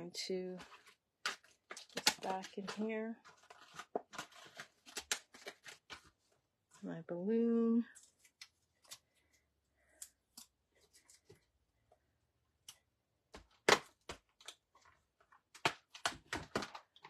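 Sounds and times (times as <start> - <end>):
paper and plastic rustling: 0.5 - 6.4.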